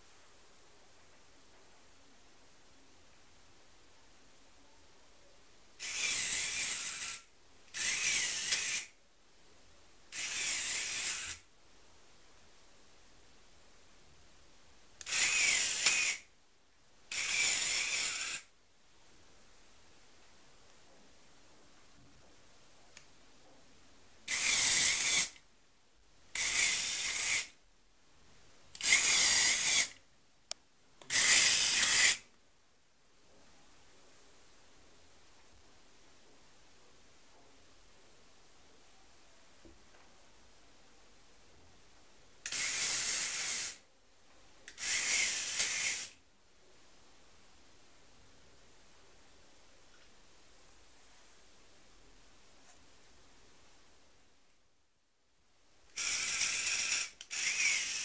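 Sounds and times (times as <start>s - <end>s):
toy motor and gears whirring: 5.8s - 9.0s, 10.1s - 11.5s, 15.0s - 16.3s, 17.1s - 18.5s, 24.3s - 25.4s, 26.3s - 27.6s, 28.8s - 30.0s, 31.1s - 32.3s, 42.4s - 43.8s, 44.7s - 46.2s, 55.9s - 58.0s.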